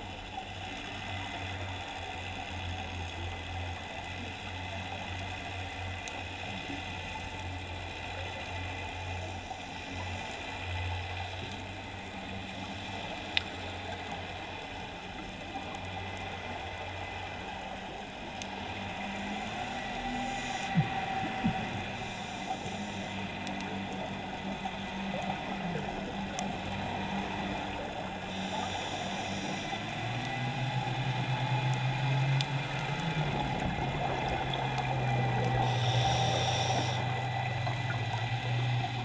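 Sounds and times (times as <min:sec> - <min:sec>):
low underwater hum: 0:00.0 - 0:39.0
fizzing hiss: 0:35.6 - 0:37.0.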